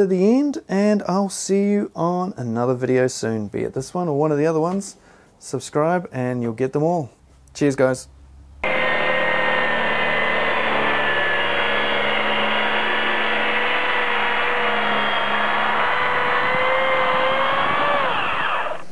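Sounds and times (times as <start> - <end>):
track saw motor whine: 8.6 - 18.9.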